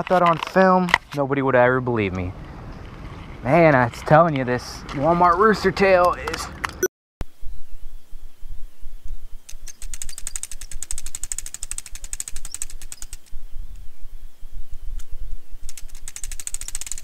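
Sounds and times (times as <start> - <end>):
fishing reel clicking: 9.6 - 13.3, 15.7 - 17.0
wind rumble on microphone: 12.4 - 17.0.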